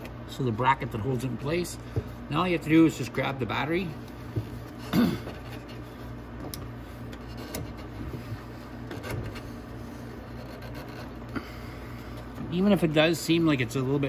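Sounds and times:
steady low hum: 0:00.0 - 0:14.0
rubbing and scraping plastic: 0:04.4 - 0:11.3.

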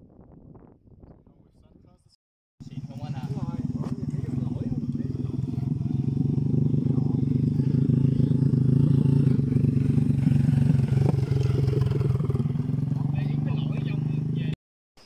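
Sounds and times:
small motorcycle engine chugging: 0:02.6 - 0:14.6.

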